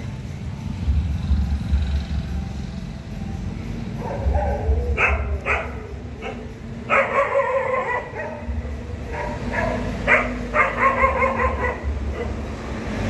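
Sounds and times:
dogs barking and yelping: 0:03.8 - 0:13.0.

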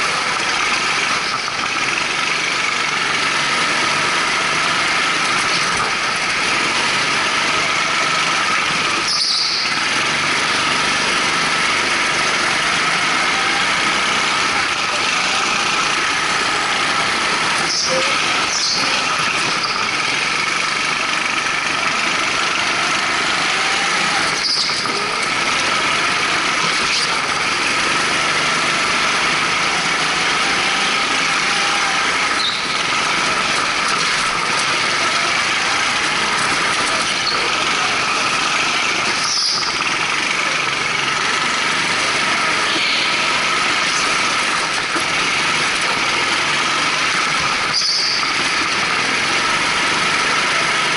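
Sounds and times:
go-kart engine running: 0:00.0 - 0:50.9
tyre squeals: 0:08.8 - 0:10.1, 0:12.5 - 0:20.0, 0:23.4 - 0:25.8, 0:29.1 - 0:40.0, 0:42.3 - 0:49.0.

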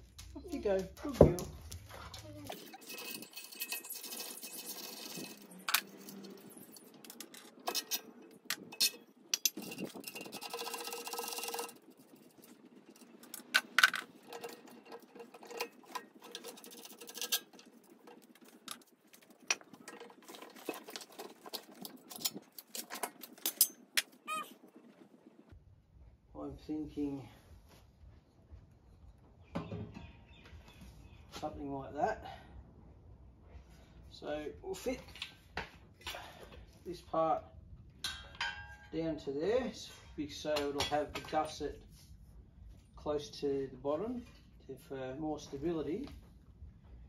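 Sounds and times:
metallic clicks and rattles of tools: 0:02.5 - 0:24.2.

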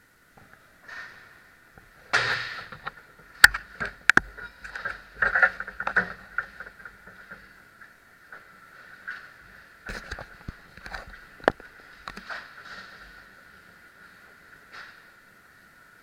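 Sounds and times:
steady high hum: 0:00.0 - 0:16.0.

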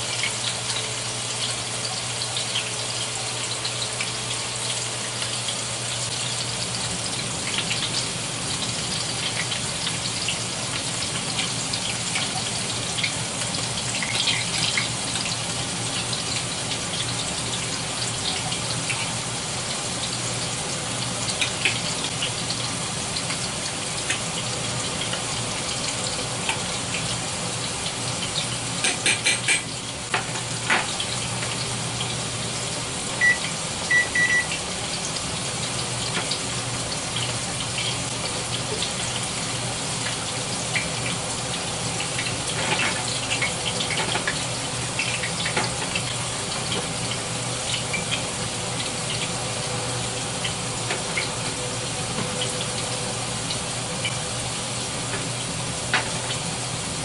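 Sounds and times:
food frying in hot oil: 0:00.0 - 0:57.0
short high beeps: 0:33.2 - 0:34.5.

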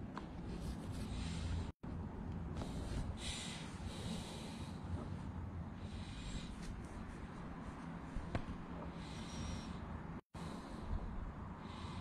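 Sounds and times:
steady low hum: 0:00.0 - 0:12.0
person breathing: 0:00.9 - 0:01.8, 0:02.5 - 0:07.2, 0:08.7 - 0:12.0.

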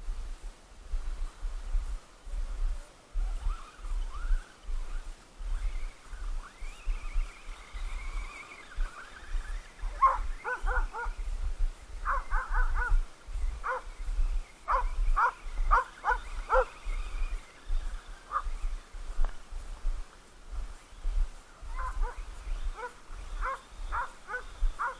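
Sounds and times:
dogs barking: 0:09.9 - 0:11.2, 0:12.0 - 0:13.0, 0:13.6 - 0:13.9, 0:14.7 - 0:16.8, 0:18.3 - 0:18.5, 0:21.7 - 0:24.9.

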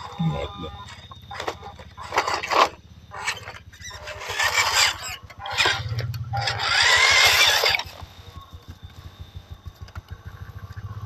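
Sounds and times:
toy truck crunching over dirt: 0:00.0 - 0:08.2.

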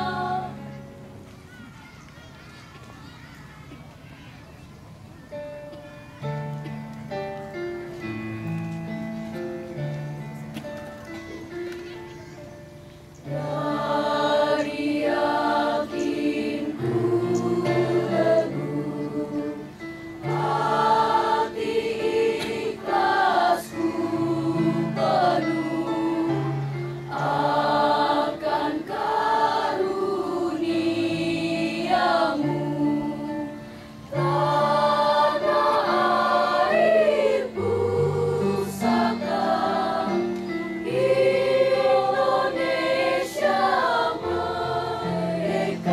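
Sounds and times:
choir singing: 0:00.0 - 0:01.0, 0:13.3 - 0:45.9.

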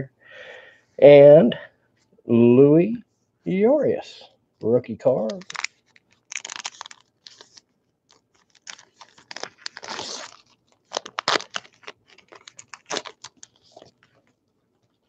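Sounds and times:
cards rustling: 0:05.2 - 0:15.0
wrapper crinkling and tearing: 0:05.2 - 0:15.0.

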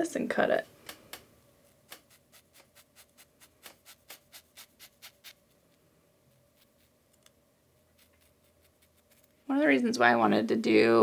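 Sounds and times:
razor scraping wet hair: 0:01.7 - 0:05.5, 0:07.8 - 0:09.4.

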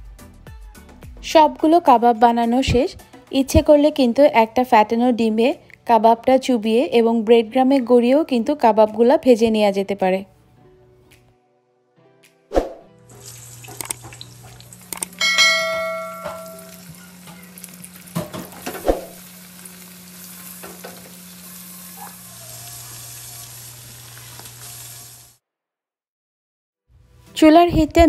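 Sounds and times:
kebabs sizzling in hot oil: 0:13.0 - 0:25.4
metal clink: 0:15.2 - 0:16.8.

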